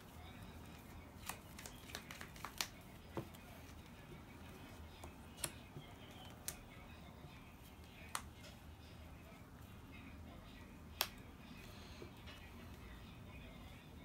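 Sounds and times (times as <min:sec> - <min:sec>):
cards clicking and tapping: 0:01.2 - 0:03.4, 0:05.0 - 0:06.6.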